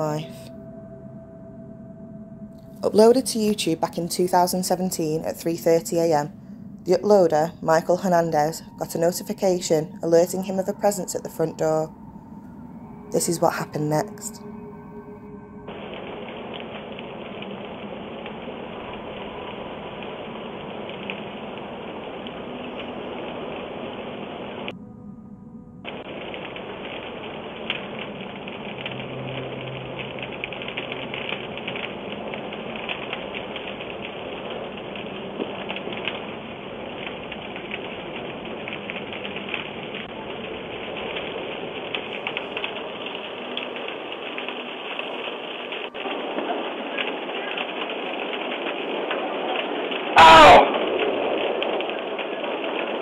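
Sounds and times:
fire hissing and crackling: 15.2 - 24.7, 25.9 - 53.0.

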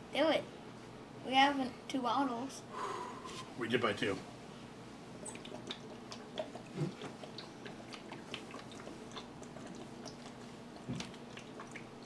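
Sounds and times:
person gulping soda: 5.2 - 12.0
wet mouth clicks: 5.2 - 12.0.

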